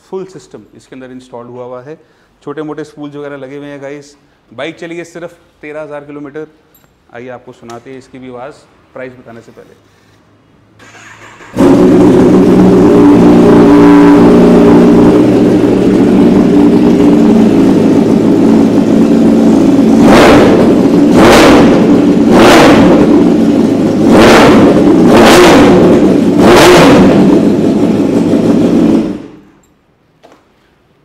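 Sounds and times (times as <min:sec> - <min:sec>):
motorcycle engine idling and revving: 0:11.1 - 0:29.6.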